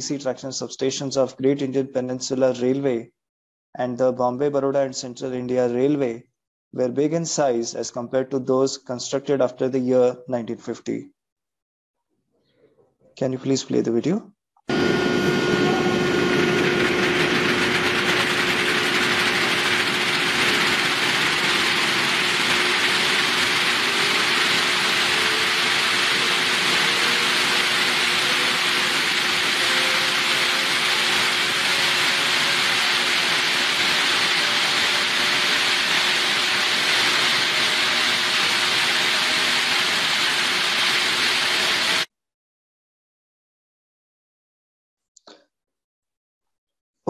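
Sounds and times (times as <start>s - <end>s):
machine whir and hiss: 14.7s - 42.1s.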